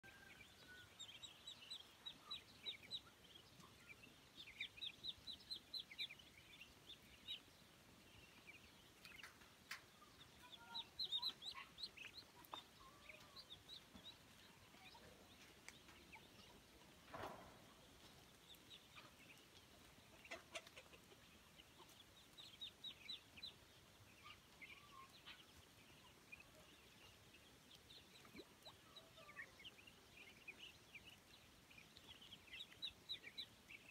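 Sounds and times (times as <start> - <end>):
ducklings and chicks peeping: 0.0 - 33.9
poultry clucking: 19.0 - 22.1.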